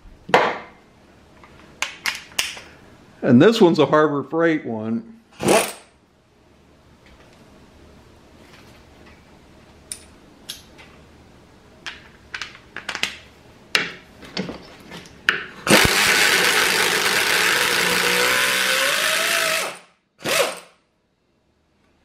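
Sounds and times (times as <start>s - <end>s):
air ratchet running: 15.7s - 20.7s.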